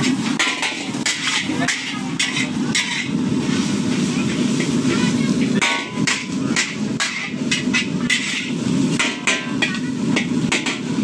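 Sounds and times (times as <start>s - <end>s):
metal spatula clanking on wok: 0.0s - 3.2s, 5.6s - 11.0s.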